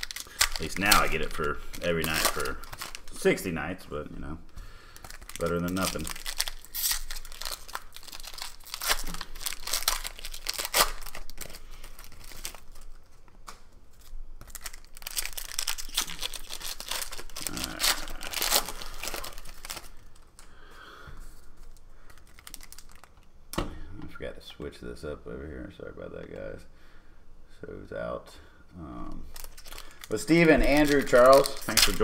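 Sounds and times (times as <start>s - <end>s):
foil wrappers torn and crinkled: 0.0s - 3.5s, 5.0s - 20.5s, 21.6s - 23.2s, 29.3s - 32.0s.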